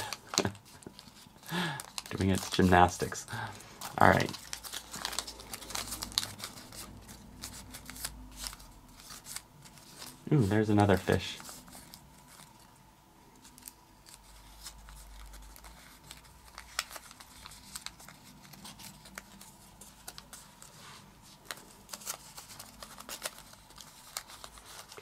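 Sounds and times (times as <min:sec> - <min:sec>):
paper crinkling: 0:00.0 - 0:25.0.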